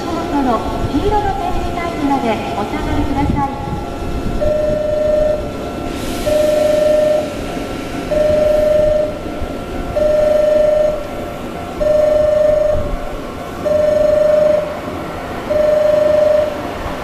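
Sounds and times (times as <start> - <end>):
electronic warning tone: 4.4 - 7.4, 8.1 - 14.9, 15.5 - 16.7
faint steady high tone: 6.3 - 7.4, 8.1 - 9.2, 10.0 - 11.1, 11.8 - 13.0, 13.6 - 14.8, 15.5 - 16.6.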